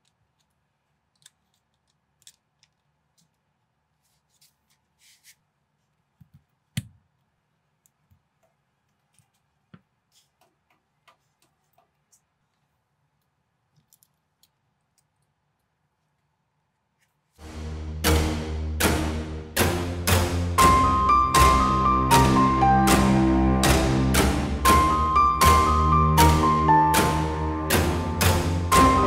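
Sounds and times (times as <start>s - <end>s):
plastic bricks clicking together: 0.0s - 3.3s.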